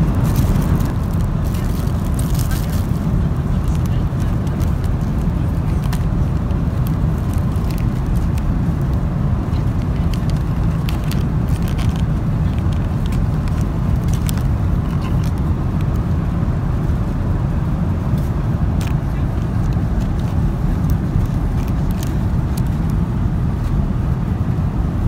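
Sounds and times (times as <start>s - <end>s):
airplane cabin noise: 0.0s - 25.0s
plastic wrappers crinkling: 0.1s - 6.2s, 6.8s - 8.5s, 9.9s - 15.9s, 19.6s - 23.0s.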